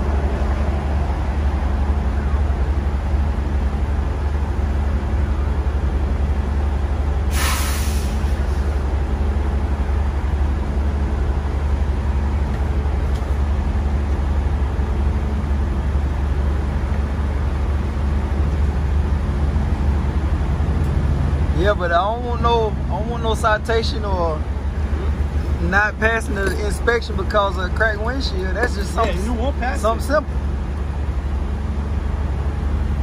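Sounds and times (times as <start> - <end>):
diesel engine idling: 0.0 - 33.0
air brake hiss: 7.3 - 8.7.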